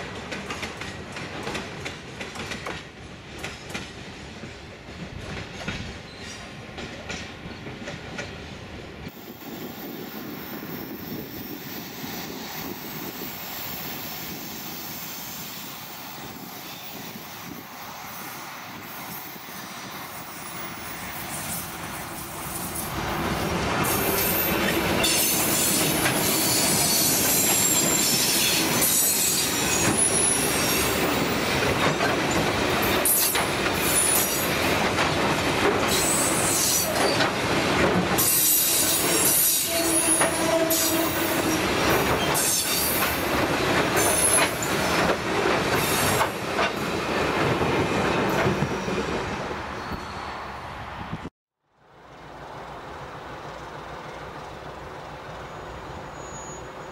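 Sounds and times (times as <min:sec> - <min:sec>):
train wheels rumbling on rails: 0:00.0 - 0:51.3
high-pitched wheel squeal: 0:55.5 - 0:56.9.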